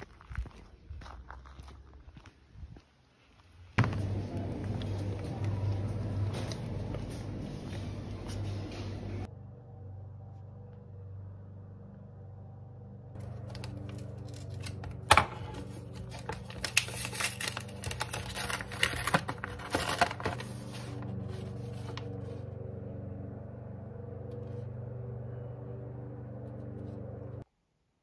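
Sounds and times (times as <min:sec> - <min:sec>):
paper rustling and crackling: 0:13.2 - 0:22.4
sharp paper snap: 0:13.3 - 0:20.4.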